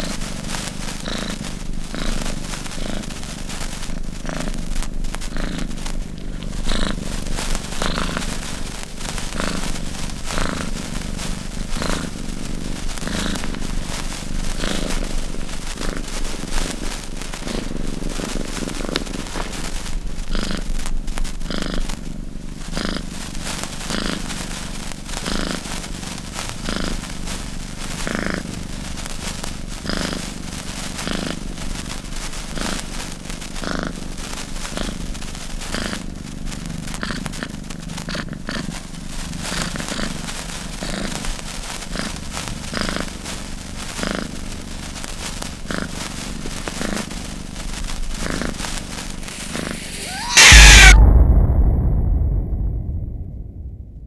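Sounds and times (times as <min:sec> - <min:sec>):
burning fuse fizzing: 0:00.0 - 0:21.5, 0:38.6 - 0:51.0
cat purring: 0:00.0 - 0:51.0.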